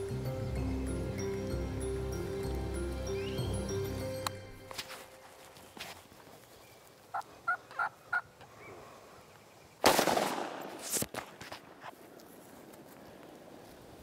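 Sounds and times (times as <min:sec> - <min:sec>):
shotgun blast: 0:09.8 - 0:11.0.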